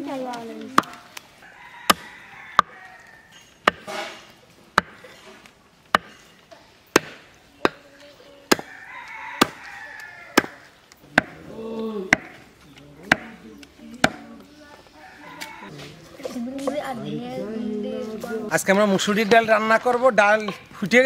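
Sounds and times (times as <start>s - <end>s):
cleaver chopping meat on wood: 3.6s - 4.1s, 4.8s - 5.1s, 5.9s - 6.2s, 6.9s - 7.8s, 8.5s - 9.7s, 10.3s - 11.4s, 12.1s - 12.4s, 13.0s - 13.4s, 14.0s - 14.3s.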